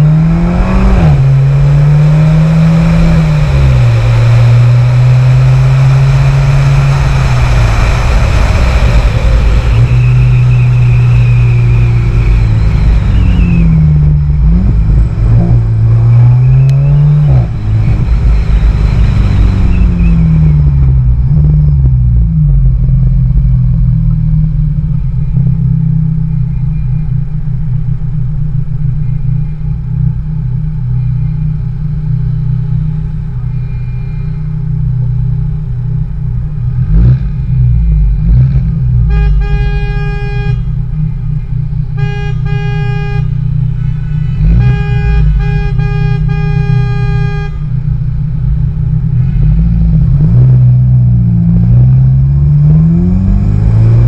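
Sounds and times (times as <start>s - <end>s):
car engines rumbling: 0.0s - 54.0s
car horn blasts: 39.0s - 48.1s.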